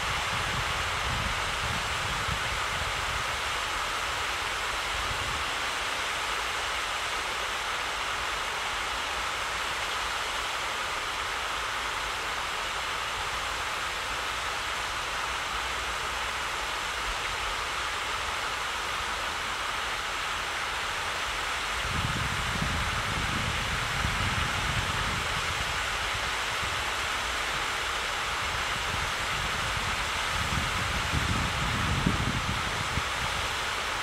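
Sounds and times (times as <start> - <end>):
wind rumble on microphone: 0.0 - 3.9, 21.7 - 27.7, 28.3 - 34.0
steady rushing hiss: 0.0 - 34.0.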